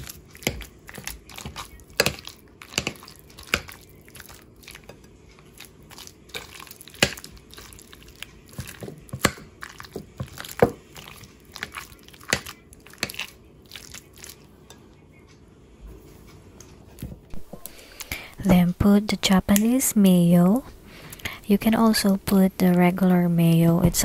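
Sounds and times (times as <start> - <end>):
fork mashing wet mixture: 0.0 - 15.0.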